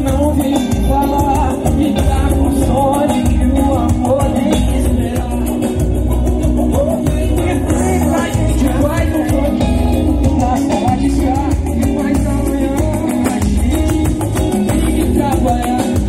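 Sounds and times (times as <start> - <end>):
live band music over pa: 0.0 - 16.0
person singing: 0.0 - 16.0.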